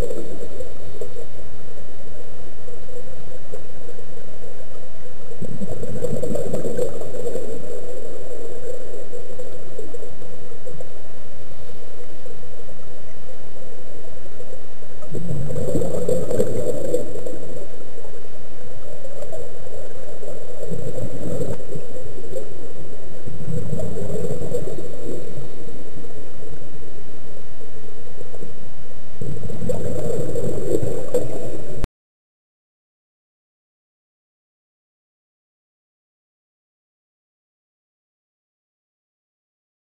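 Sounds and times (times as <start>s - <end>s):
underwater regulator bubbles: 0.0s - 31.8s
steady background hiss: 0.0s - 31.9s.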